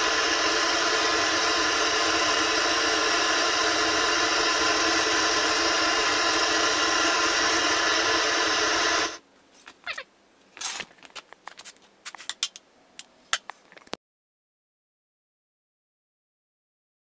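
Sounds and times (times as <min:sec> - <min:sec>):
furnace burner roaring: 0:00.0 - 0:09.2.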